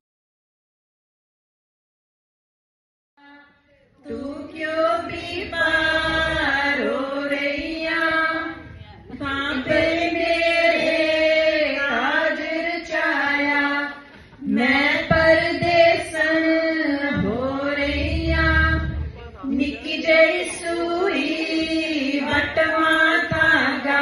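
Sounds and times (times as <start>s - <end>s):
women singing folk song: 3.2s - 24.0s
dholak drum: 4.4s - 11.2s, 14.4s - 20.6s.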